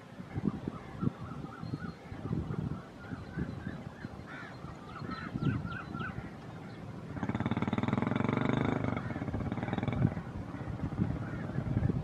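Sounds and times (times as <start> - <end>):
birds calling: 0.0 - 12.0
locomotive engine pulsing drone: 3.9 - 12.0.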